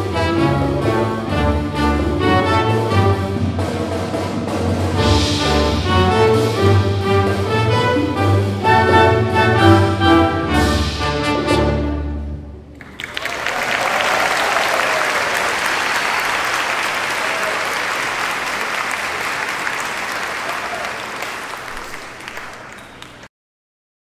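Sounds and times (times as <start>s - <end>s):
audience applause: 12.7s - 23.3s.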